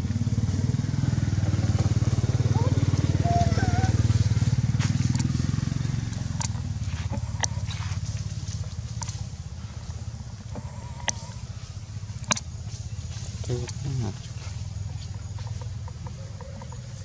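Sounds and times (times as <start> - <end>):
motorcycle engine running: 0.0 - 17.0
sharp clicks: 6.1 - 7.6.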